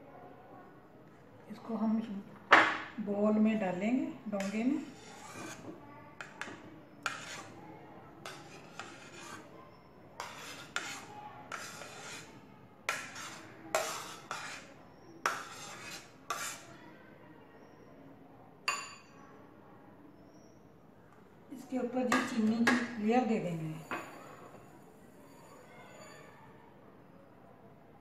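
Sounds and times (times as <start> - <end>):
spoon scraping and clinking on dishes: 4.3 - 7.6, 8.2 - 9.5, 10.2 - 16.7, 23.7 - 26.4.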